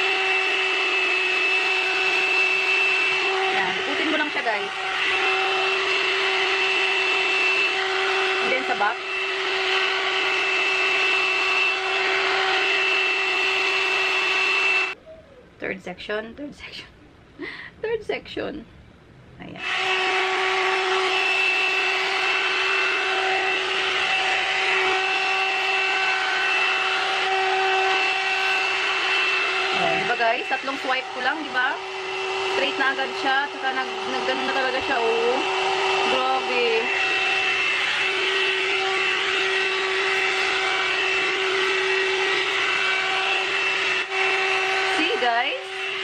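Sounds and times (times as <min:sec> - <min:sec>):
hair dryer fan blowing: 0:00.0 - 0:15.0, 0:19.6 - 0:46.0.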